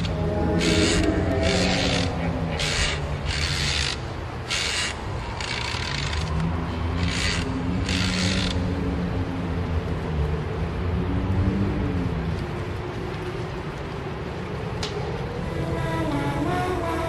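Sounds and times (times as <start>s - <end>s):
low steady hum: 0.0s - 4.4s.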